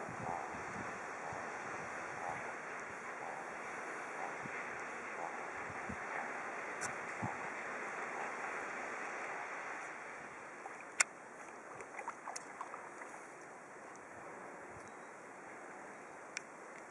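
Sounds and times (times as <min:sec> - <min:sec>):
small splashes and drips: 0:10.6 - 0:13.2.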